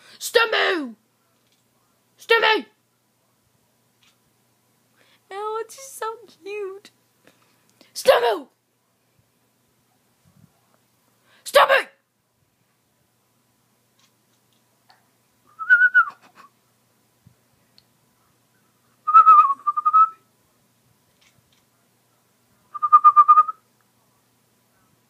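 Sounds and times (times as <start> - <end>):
person whistling: 15.5 - 16.5, 19.1 - 20.2, 22.8 - 23.6.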